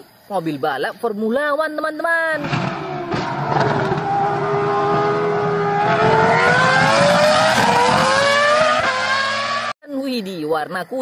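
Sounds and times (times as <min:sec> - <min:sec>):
racing car engine at high revs: 0:02.4 - 0:09.8.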